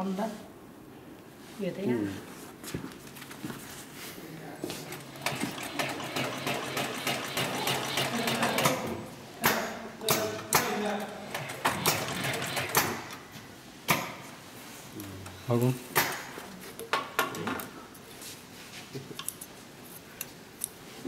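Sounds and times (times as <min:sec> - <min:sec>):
sewing machine loud clunks: 0:04.9 - 0:09.0, 0:11.3 - 0:13.1
sewing machine stitching: 0:04.9 - 0:09.0, 0:11.3 - 0:13.2.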